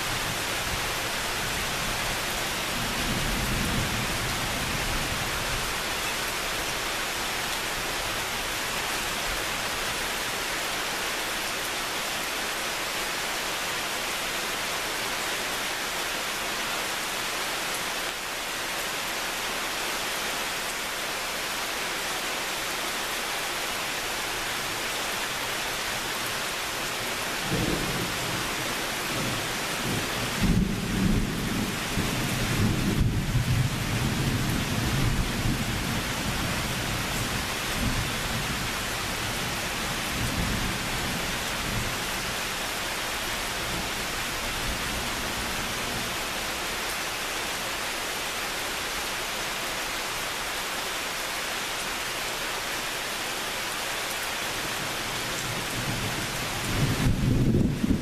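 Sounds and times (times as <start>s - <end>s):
rain hissing: 0.0s - 58.0s
rolling thunder: 56.7s - 58.0s.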